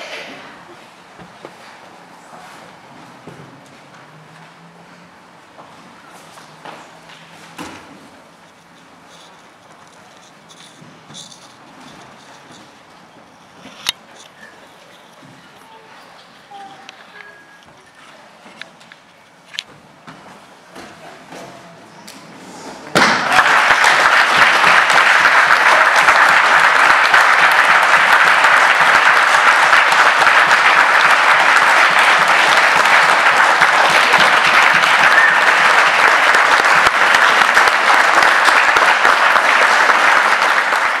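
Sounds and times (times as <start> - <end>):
spectators applauding: 23.0 - 41.0.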